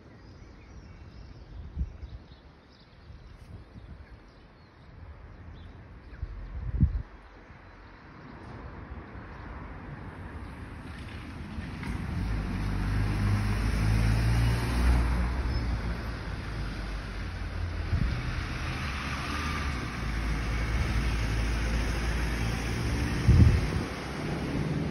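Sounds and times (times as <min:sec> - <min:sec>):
car passing: 0:08.7 - 0:24.9
diesel minibus passing: 0:08.8 - 0:24.9.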